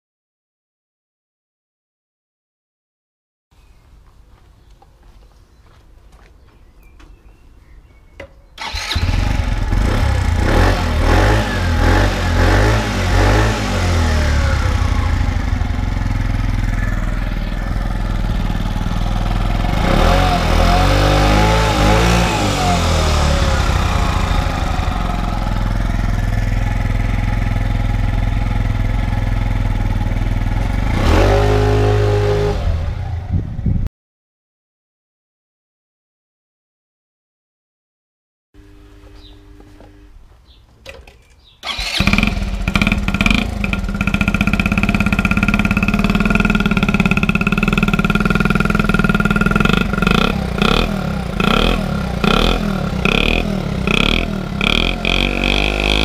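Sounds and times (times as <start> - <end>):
scooter engine revving and idling: 8.6 - 33.8, 41.6 - 56.0.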